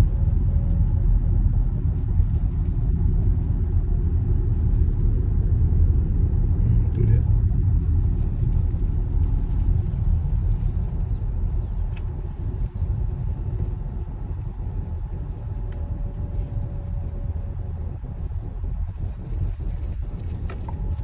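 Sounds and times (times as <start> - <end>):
car road and engine noise: 0.0 - 21.0.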